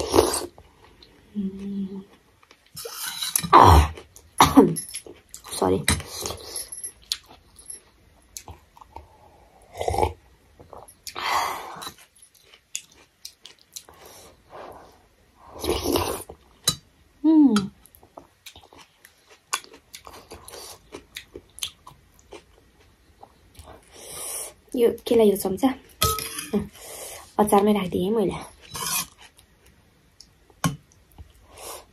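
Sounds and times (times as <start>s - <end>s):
chewing noodle soup: 8.3s - 14.5s, 17.8s - 24.5s.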